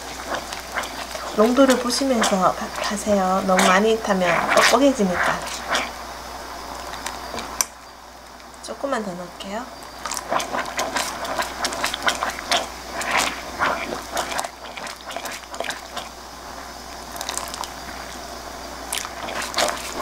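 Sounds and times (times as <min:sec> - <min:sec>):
spatula scraping a saucepan: 0:00.0 - 0:05.9
sauce boiling: 0:00.0 - 0:20.0.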